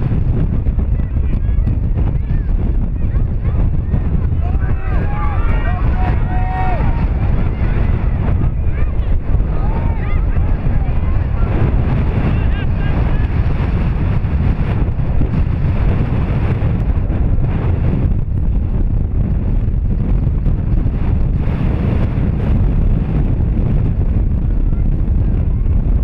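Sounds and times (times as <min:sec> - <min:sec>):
wind buffeting microphone: 0:00.0 - 0:26.0.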